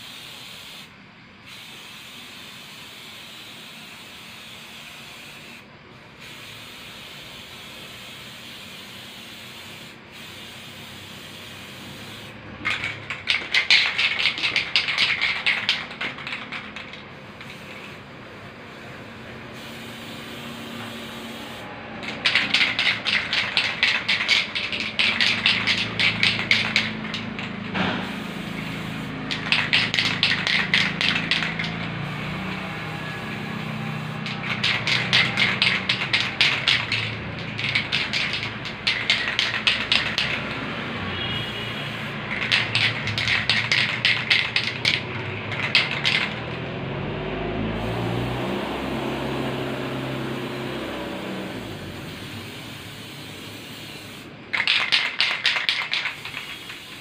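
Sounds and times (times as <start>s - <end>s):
spray paint can hissing: 0.0s - 46.7s, 47.6s - 57.0s.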